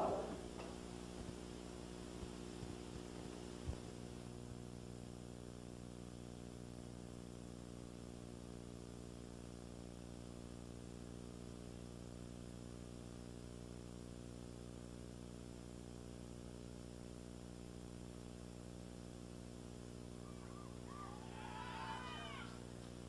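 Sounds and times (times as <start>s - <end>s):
electrical hum and tape hiss: 0.0s - 23.0s
wavering high-pitched cries: 20.2s - 22.6s.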